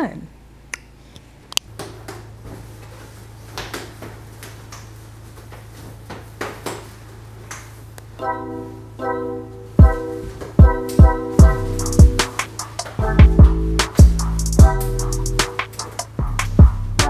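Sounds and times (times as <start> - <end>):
background music: 8.2 - 17.0.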